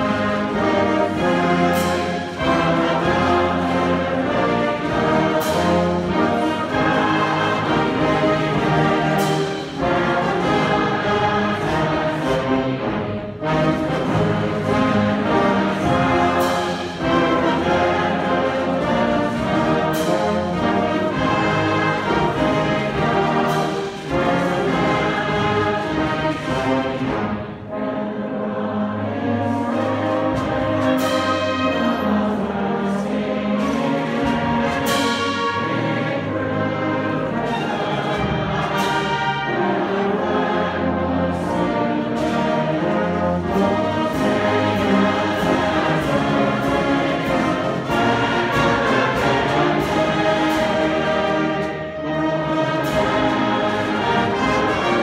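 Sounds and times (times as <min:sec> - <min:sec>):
concert band playing: 0:00.0 - 0:55.0.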